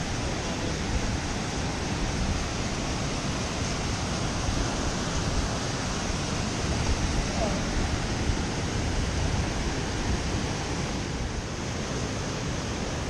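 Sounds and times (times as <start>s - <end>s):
river rushing over boulders: 0.0s - 13.0s.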